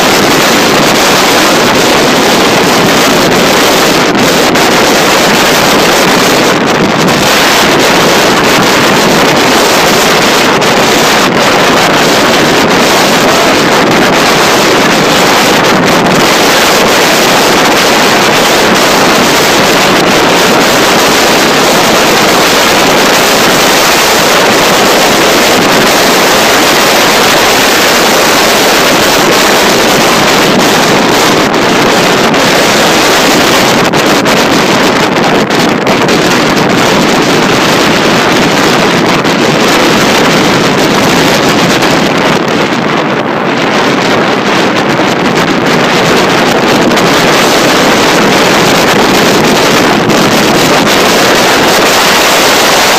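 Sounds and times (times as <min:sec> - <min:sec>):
wind buffeting microphone: 0:00.0 - 0:52.9.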